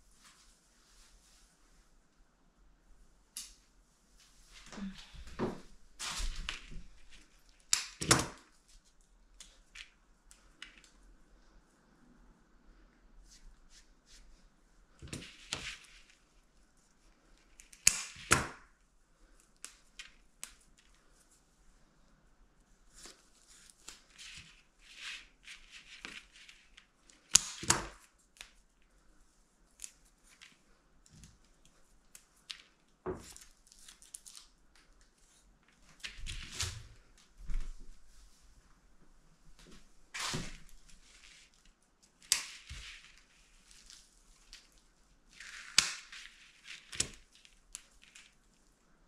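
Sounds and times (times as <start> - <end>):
rustling and scraping: 4.1 - 7.8, 22.8 - 27.3, 29.8 - 48.8
sharp snaps and clicks: 7.4 - 8.4, 17.6 - 18.7.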